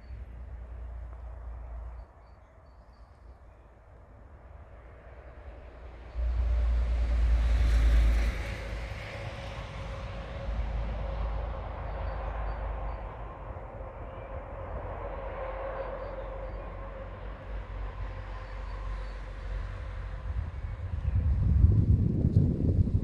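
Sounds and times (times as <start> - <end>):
low rumble: 5.0 - 23.0
vehicle passing by: 5.2 - 13.9.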